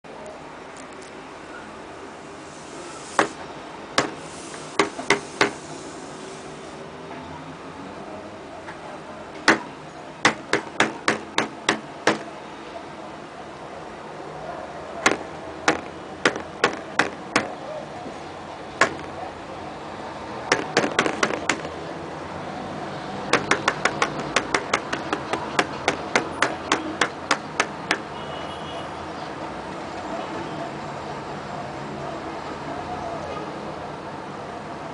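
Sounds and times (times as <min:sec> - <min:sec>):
fingers tapping thick fluid: 0:23.3 - 0:28.1.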